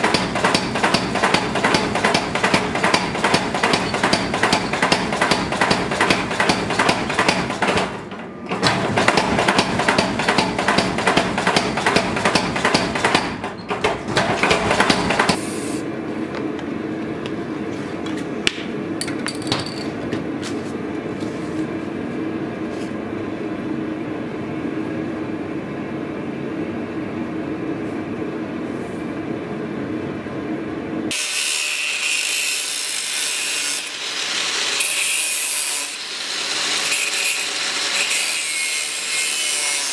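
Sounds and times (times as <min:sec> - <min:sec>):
power hammer beating steel: 0:00.0 - 0:15.4
angle grinder cutting sheet steel: 0:31.1 - 0:39.9.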